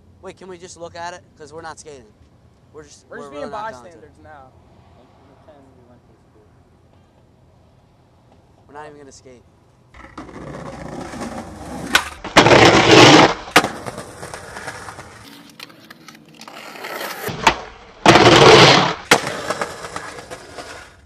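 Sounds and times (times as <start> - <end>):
skateboard popping: 9.9 - 21.0
skateboard landing clack: 10.0 - 21.0
skateboard scraping along ledge: 10.0 - 21.0.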